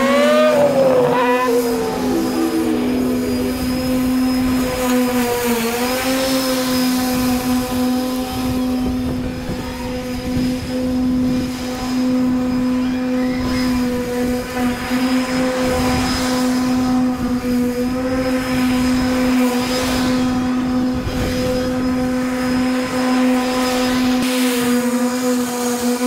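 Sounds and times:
rushing air noise: 0.0s - 5.9s
steady machine hum: 0.0s - 26.0s.

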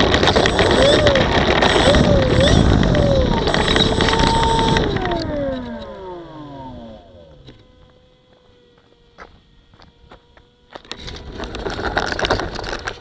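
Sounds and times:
model plane electric motor whine: 0.0s - 13.0s.

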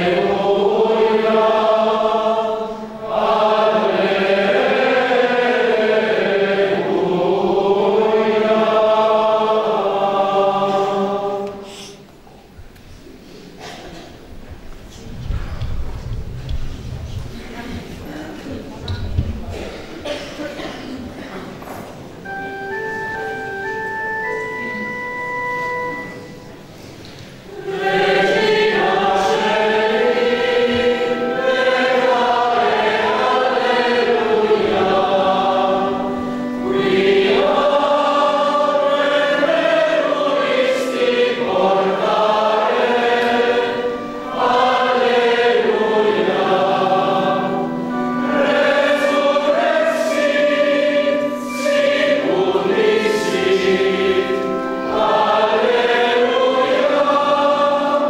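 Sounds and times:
church choir singing a hymn: 0.0s - 12.2s, 13.2s - 58.0s.

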